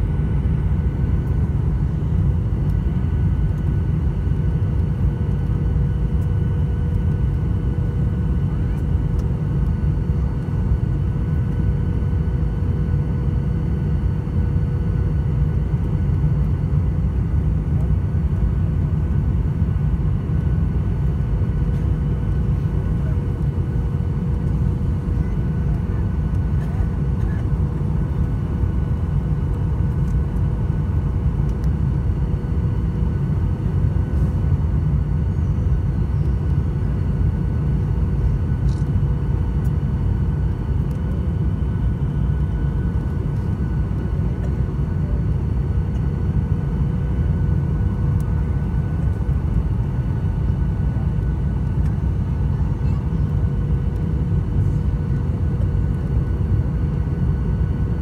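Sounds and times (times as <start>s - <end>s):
jet engine and airflow rumble: 0.0s - 58.0s
faint engine tones: 20.2s - 56.9s.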